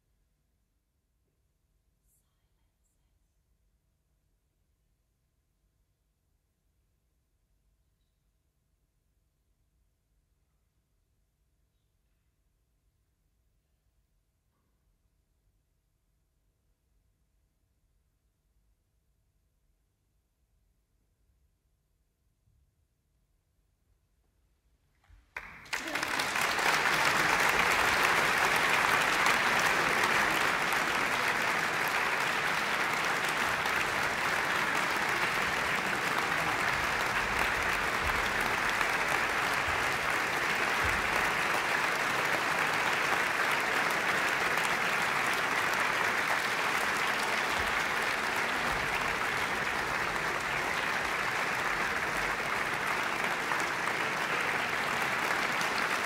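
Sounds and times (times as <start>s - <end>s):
audience applauding: 25.3s - 56.0s.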